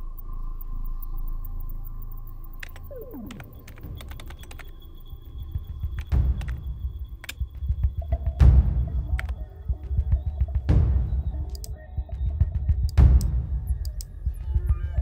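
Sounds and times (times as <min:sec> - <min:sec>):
low film score with booms: 0:00.0 - 0:15.0
keyboard keys clicking: 0:02.6 - 0:04.7, 0:07.2 - 0:07.7.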